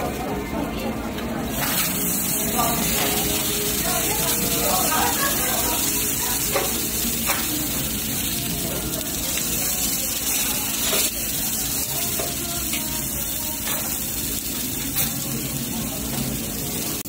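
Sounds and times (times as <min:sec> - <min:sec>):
steak sizzling on grill: 0:01.5 - 0:17.0.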